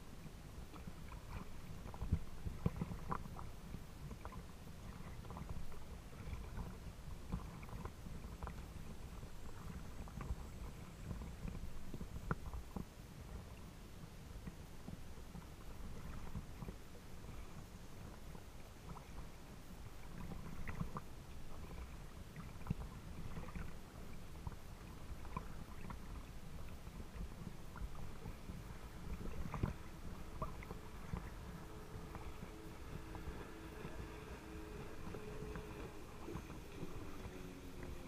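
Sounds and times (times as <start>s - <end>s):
steady low rumble: 0.0s - 38.0s
water lapping against boat: 0.0s - 38.0s
light splashes: 20.0s - 38.0s.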